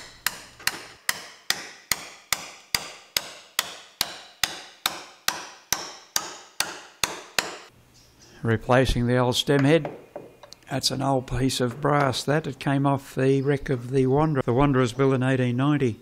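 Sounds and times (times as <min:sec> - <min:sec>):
hammer striking metal rod: 0:00.0 - 0:07.7.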